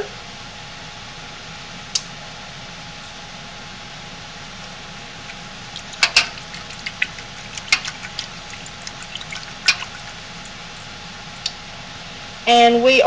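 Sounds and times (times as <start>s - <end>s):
thermometer clicking on metal pot: 5.3s - 10.8s.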